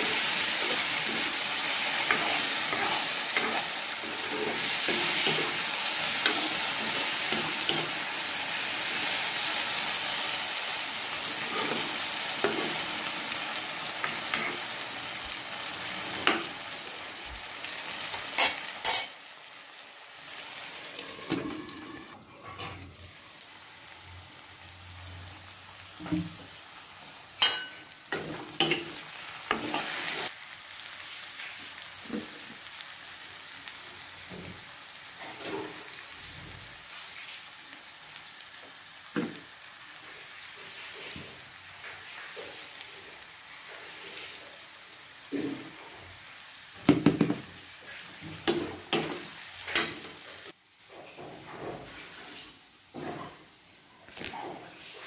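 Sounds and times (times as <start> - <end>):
metal ladle scraping a pan: 0.0 - 9.1, 18.1 - 19.1, 20.9 - 23.0
vegetables sizzling in a pan: 0.0 - 55.0.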